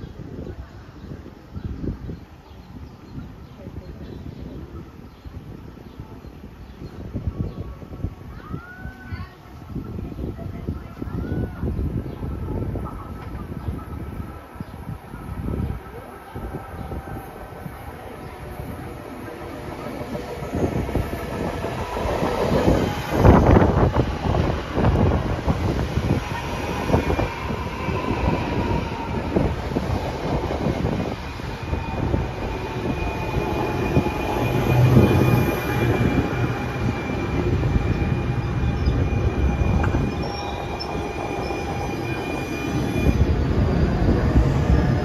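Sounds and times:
train wheels rumbling over rails: 11.1s - 45.0s
high-pitched brake squeal: 30.8s - 44.9s.

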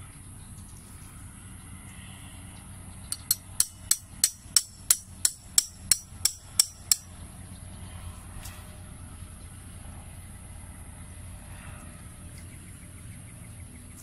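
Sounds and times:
hammer striking metal stake: 3.1s - 7.1s.

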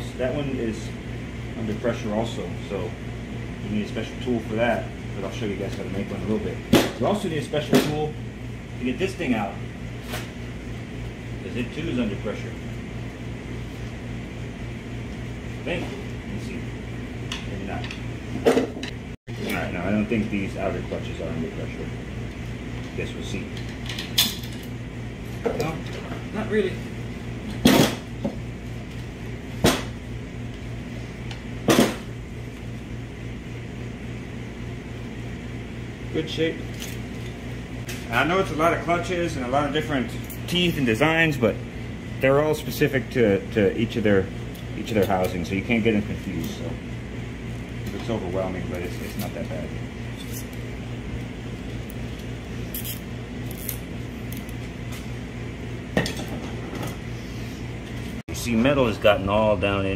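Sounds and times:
steady low hum: 0.0s - 59.9s.

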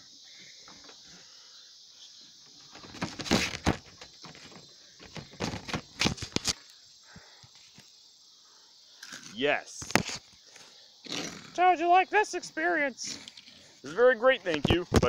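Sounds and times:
camera handling rustling and clicks: 5.4s - 6.6s.

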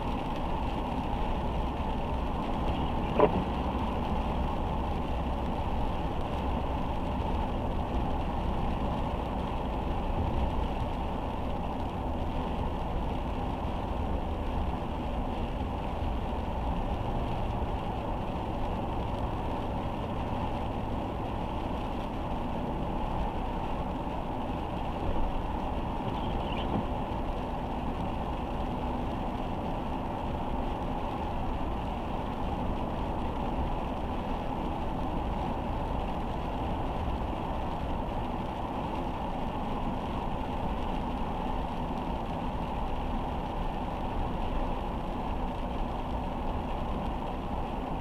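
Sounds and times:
car engine running: 0.0s - 17.0s, 17.6s - 28.8s
tyres on wet road: 0.0s - 48.0s.

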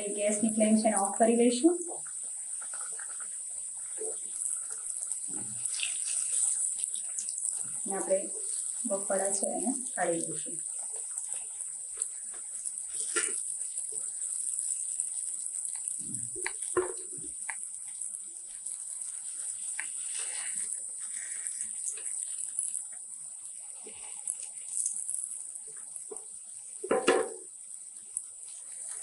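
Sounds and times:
hot oil sizzling: 0.0s - 29.0s
spoon knocking against pan: 26.8s - 27.5s.

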